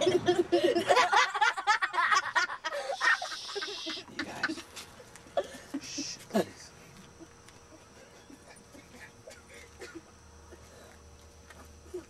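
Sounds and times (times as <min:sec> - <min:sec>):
snickering laughter: 0:00.0 - 0:04.6, 0:05.4 - 0:10.7
people's voices: 0:02.7 - 0:04.8.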